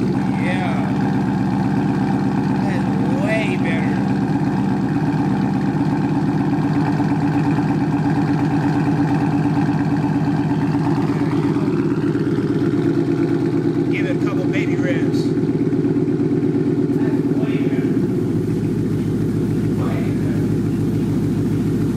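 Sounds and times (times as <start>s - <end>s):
car engine idling: 0.0s - 21.9s.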